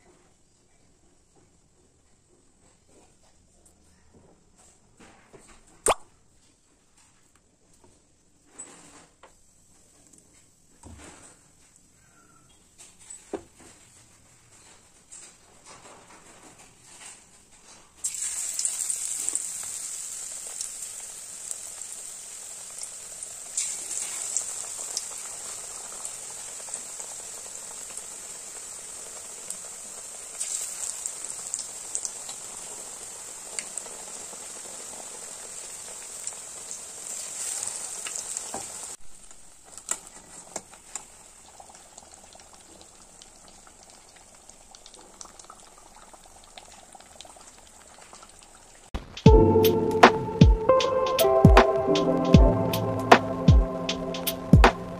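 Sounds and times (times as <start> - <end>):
batter deep-frying in hot oil: 16.5 - 49.2.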